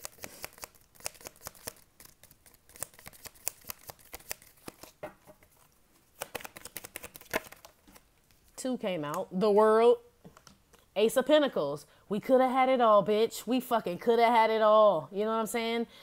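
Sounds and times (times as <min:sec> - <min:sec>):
cards being shuffled by hand: 0:00.0 - 0:08.5.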